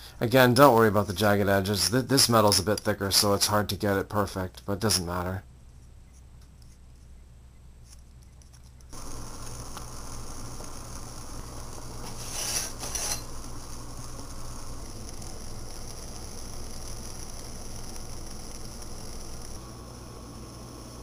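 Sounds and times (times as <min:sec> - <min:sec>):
stove flame hissing: 0:00.0 - 0:03.9, 0:08.9 - 0:21.0.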